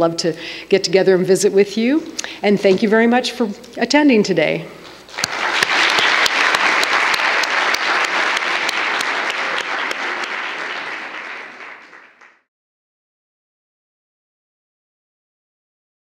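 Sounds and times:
audience applauding: 5.1 - 12.5.

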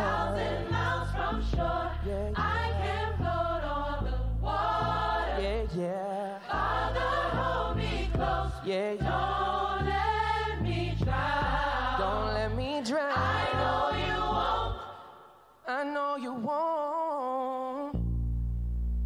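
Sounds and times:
deep bass line: 0.0 - 5.7, 6.6 - 14.8, 18.0 - 19.0
gospel choir singing in harmony: 0.0 - 15.5.

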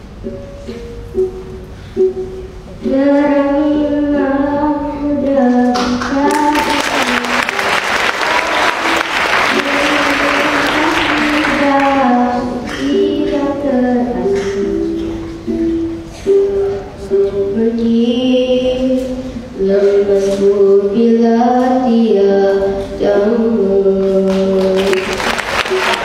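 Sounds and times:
ukulele: 0.0 - 23.0, 24.0 - 26.0
child singing into a microphone: 2.8 - 7.6, 9.5 - 25.2
audience applause: 6.3 - 12.0, 24.6 - 26.0.

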